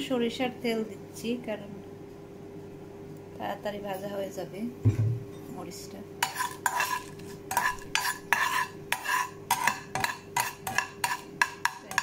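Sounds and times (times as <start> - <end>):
metal spatula scraping frying pan: 6.2 - 12.0.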